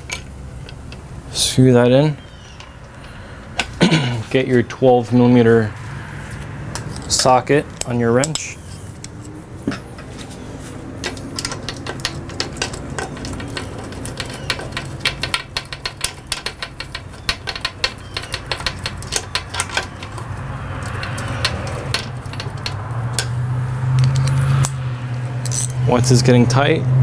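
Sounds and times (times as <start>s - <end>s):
ratchet wrench clicking: 11.0s - 25.8s.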